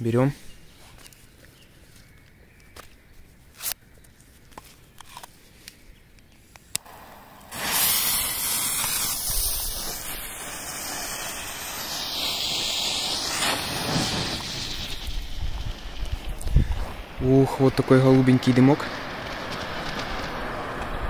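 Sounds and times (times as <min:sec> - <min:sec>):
smoke fountain hissing: 0:06.8 - 0:21.0.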